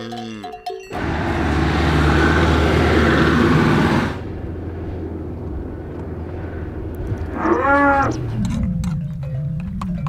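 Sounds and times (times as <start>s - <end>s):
tyre noise on dirt road: 0.9s - 10.0s
van engine running: 1.0s - 7.4s.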